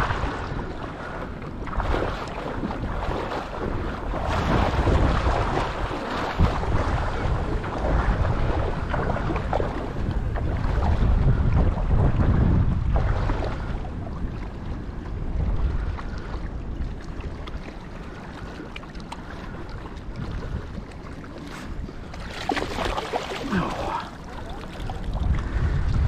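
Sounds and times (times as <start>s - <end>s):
wind rumbling on microphone: 0.0s - 26.0s
fish splashing at the surface: 22.2s - 25.3s.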